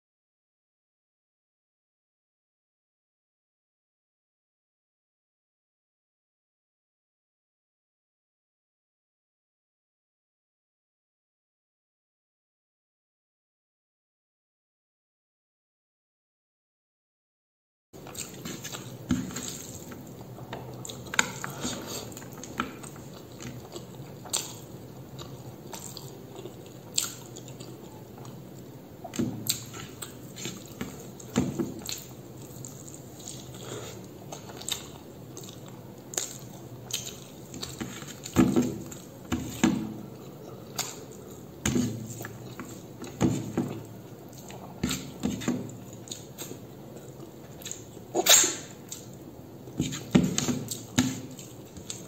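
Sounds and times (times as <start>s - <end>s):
person chewing with lip smacks: 18.0s - 28.4s, 29.0s - 39.1s, 40.2s - 41.5s, 43.8s - 49.2s.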